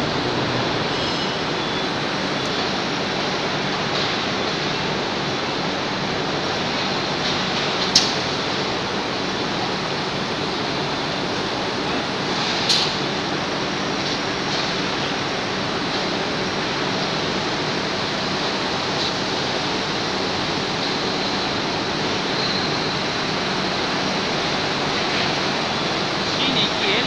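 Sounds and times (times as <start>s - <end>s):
machinery humming and whining: 0.0s - 27.0s
sharp mechanical clack: 7.8s - 8.2s.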